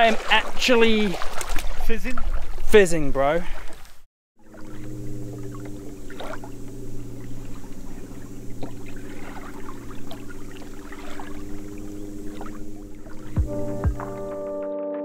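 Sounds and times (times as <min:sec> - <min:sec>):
water slapping against hull: 0:00.0 - 0:14.4
outboard motor running: 0:04.4 - 0:14.6.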